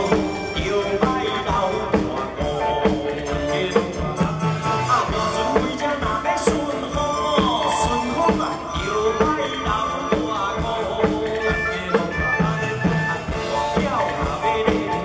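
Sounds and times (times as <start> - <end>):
live band music: 0.0 - 15.0
man singing into microphone: 0.0 - 15.0.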